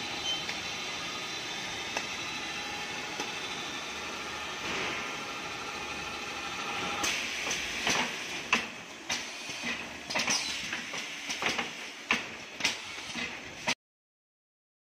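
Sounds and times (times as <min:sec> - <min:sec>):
machine clacks and clicks: 0:07.0 - 0:13.8.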